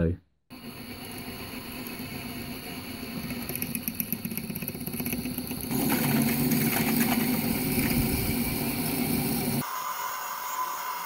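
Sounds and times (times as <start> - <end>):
lathe drill cutting metal: 7.7 - 11.0.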